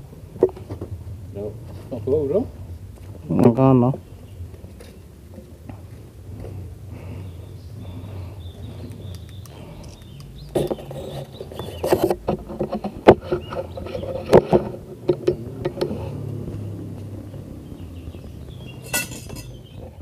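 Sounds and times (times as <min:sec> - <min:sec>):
steady low hum: 0:00.0 - 0:20.0
sharp knocks and clicks: 0:10.5 - 0:16.0.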